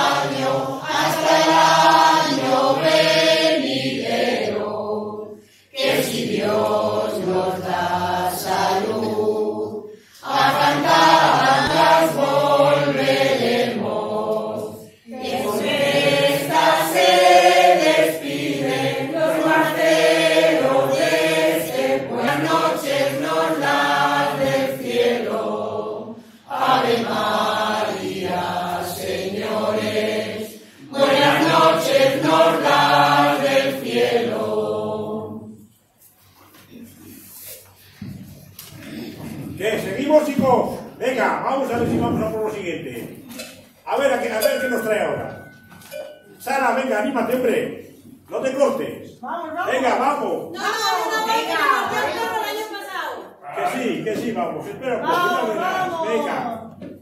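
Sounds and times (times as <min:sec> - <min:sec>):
choir singing unaccompanied: 0:00.0 - 0:35.7.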